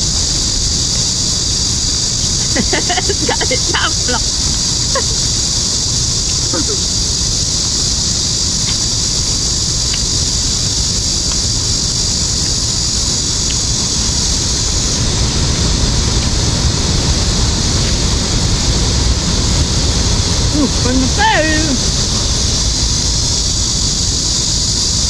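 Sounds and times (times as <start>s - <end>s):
steady high hiss: 0.0s - 25.0s
wind buffeting microphone: 0.0s - 25.0s
faint light ticks: 8.6s - 8.8s, 9.8s - 11.4s.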